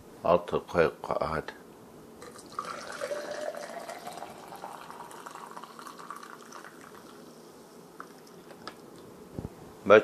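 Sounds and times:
coffee pouring into metal mug: 2.2 - 7.2.

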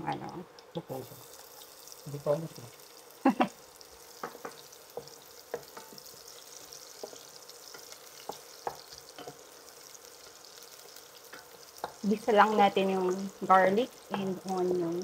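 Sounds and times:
garlic and onion sizzling in oil: 0.0 - 15.0
wooden spoon knocking on pot: 4.2 - 6.1, 7.0 - 9.4.

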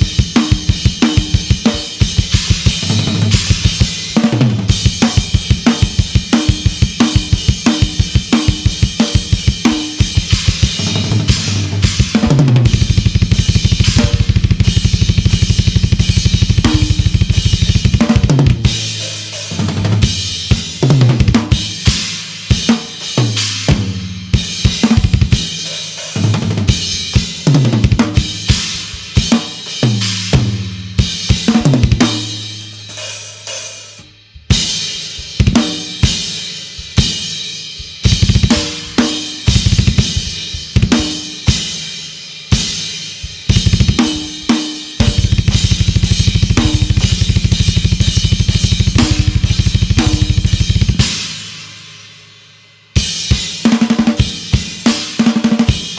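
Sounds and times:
rapid bass drum strokes: 0.0 - 55.9
snare tom and cymbal hits: 0.0 - 55.9.

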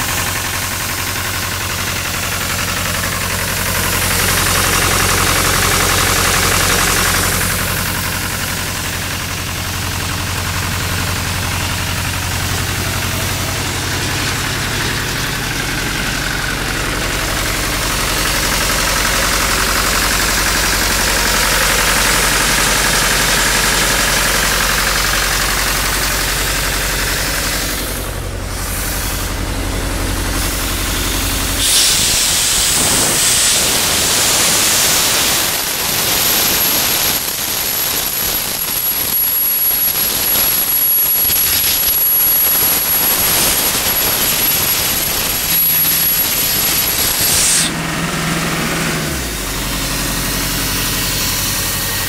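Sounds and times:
air compressor diesel engine running: 0.0 - 52.0
hiss: 17.7 - 47.8.

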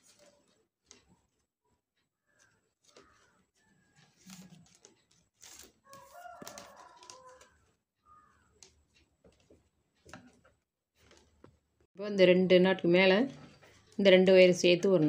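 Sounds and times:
plastic wire strips crackling: 0.0 - 1.5, 2.2 - 11.6
bird calling: 8.0 - 8.6.

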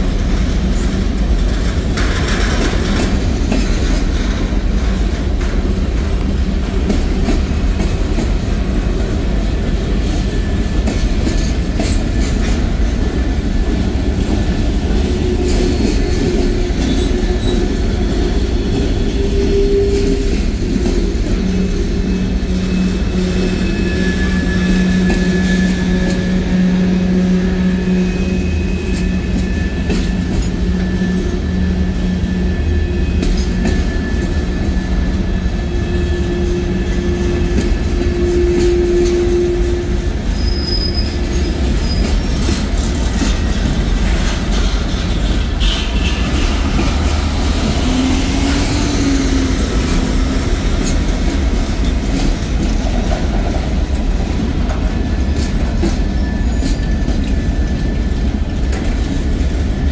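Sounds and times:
wheels clicking over rail joints: 0.0 - 22.2, 41.0 - 48.0
train wheels rumbling on rail: 0.0 - 59.9.

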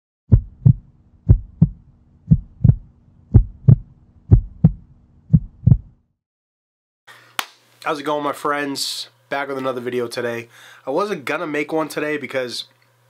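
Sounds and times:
heartbeat thumps: 0.3 - 6.0.

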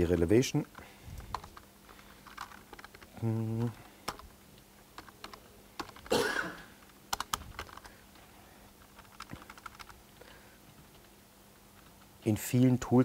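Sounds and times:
typing on a computer keyboard: 1.2 - 3.2, 3.8 - 4.3, 5.0 - 6.1, 6.8 - 8.0, 8.8 - 10.0.

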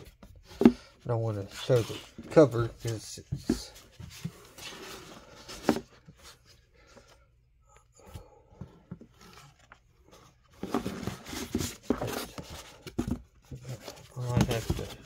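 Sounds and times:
comic book pages flipping: 9.0 - 15.0.

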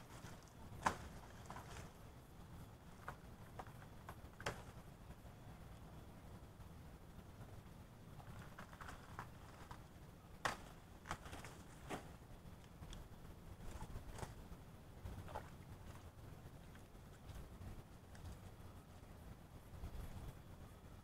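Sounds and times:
leaves snapping and rustling: 0.0 - 2.0, 2.9 - 4.8, 8.2 - 14.4.

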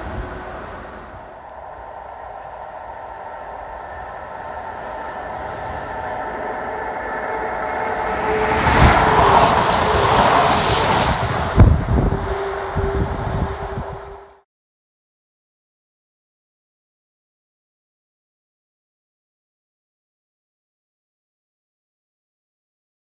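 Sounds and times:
passenger train passing: 0.0 - 14.4.

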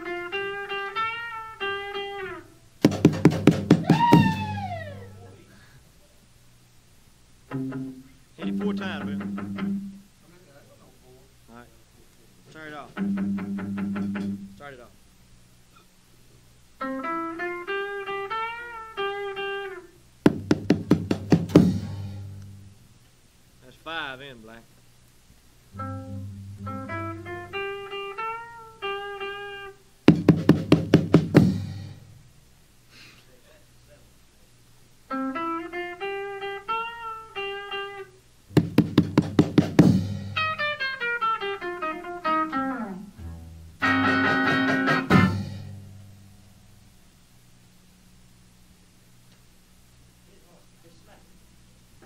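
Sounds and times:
guitar picked notes: 0.0 - 5.4, 7.5 - 10.0, 12.9 - 14.6, 16.8 - 22.8, 25.7 - 30.8, 35.1 - 46.8
guitar strummed chords: 7.5 - 10.0, 12.9 - 14.6, 16.8 - 22.8, 25.8 - 32.0, 35.1 - 46.4.

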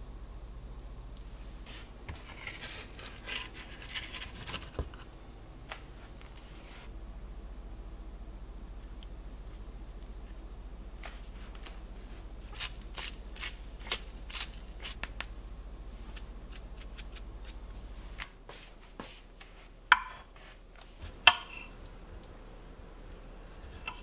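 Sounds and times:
knife slicing grapes: 12.4 - 15.3.

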